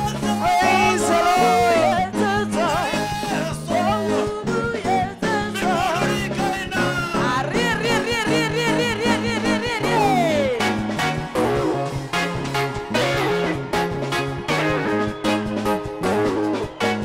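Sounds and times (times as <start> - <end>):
person singing with vibrato: 0.0 - 10.8
drum kit beat: 0.0 - 17.0
electronic keyboard: 0.0 - 17.0.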